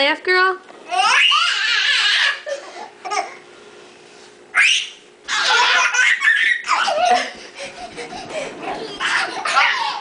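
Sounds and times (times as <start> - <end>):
baby laughing in squeals: 0.9 - 3.4, 4.5 - 10.0.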